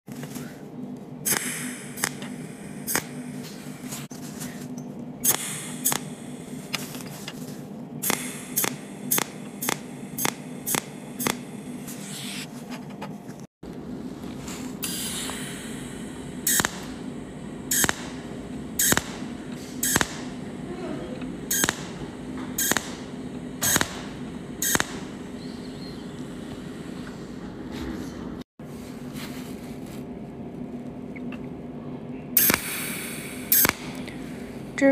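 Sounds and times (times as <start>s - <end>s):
steady hum: 0.1s - 34.9s
welding machine sharp cracks: 1.3s - 3.2s, 5.2s - 7.1s, 8.0s - 11.6s, 16.4s - 17.0s, 17.7s - 20.4s, 21.5s - 25.2s, 32.4s - 34.2s.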